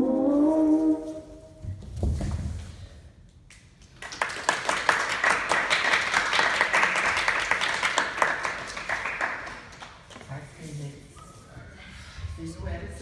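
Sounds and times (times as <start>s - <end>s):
group applauding: 3.8s - 10.2s.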